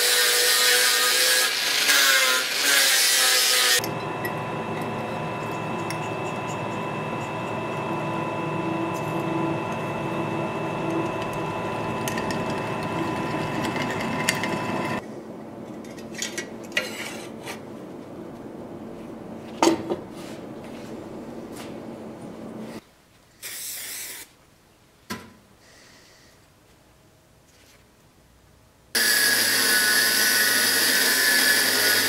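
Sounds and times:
drill press boring steel: 0:00.0 - 0:15.0, 0:29.0 - 0:32.0.

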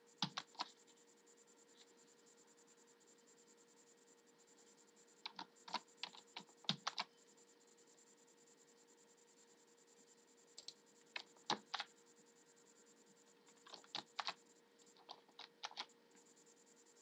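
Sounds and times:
computer keys clicking: 0:00.2 - 0:00.8, 0:05.2 - 0:07.1, 0:10.5 - 0:12.0, 0:13.5 - 0:16.3.

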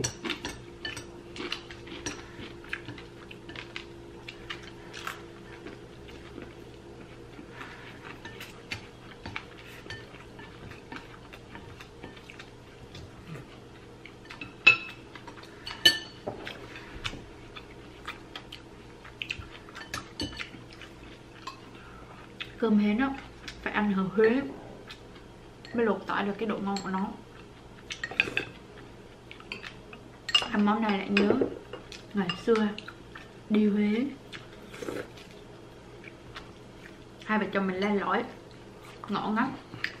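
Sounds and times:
cutlery clinking against ceramic bowls: 0:00.0 - 0:03.8, 0:14.2 - 0:16.6, 0:19.4 - 0:20.6, 0:30.3 - 0:31.4.

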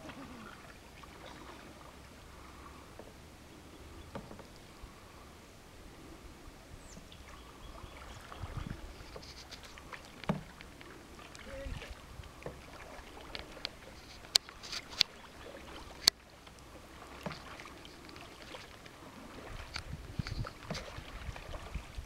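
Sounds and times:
paddle splashing and dripping: 0:00.0 - 0:22.0
paddle knocking on plastic hull: 0:04.1 - 0:04.5, 0:10.2 - 0:10.6.

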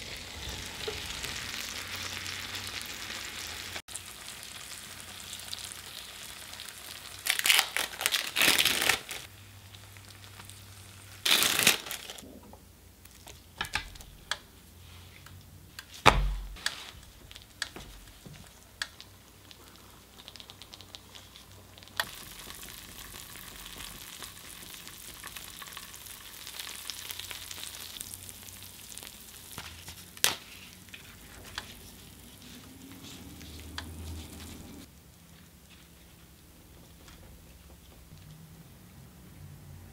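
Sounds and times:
meat sizzling on hot plates: 0:00.0 - 0:12.2, 0:16.6 - 0:35.0.

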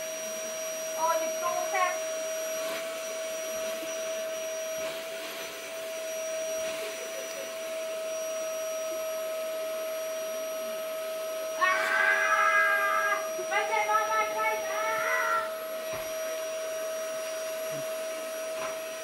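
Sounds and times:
vacuum cleaner running: 0:00.0 - 0:19.0
toddler crying: 0:11.6 - 0:13.9, 0:14.5 - 0:15.5.

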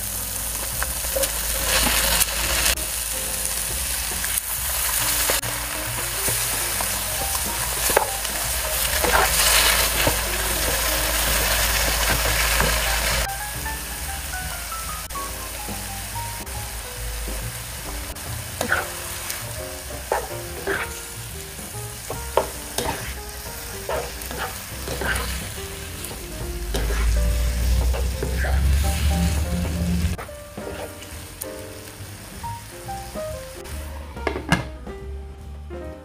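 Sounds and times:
food sizzling in a wok: 0:00.0 - 0:34.4
utensils scraping a pan: 0:06.1 - 0:13.3, 0:18.6 - 0:19.4, 0:20.1 - 0:21.1, 0:22.1 - 0:29.4, 0:30.2 - 0:31.1.

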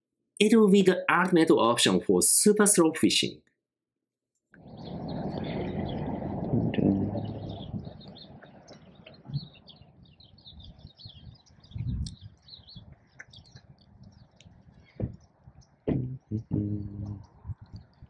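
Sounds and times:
small birds chirping: 0:04.6 - 0:18.0
dull low thumps: 0:10.4 - 0:14.2, 0:15.0 - 0:15.2, 0:15.9 - 0:18.0.

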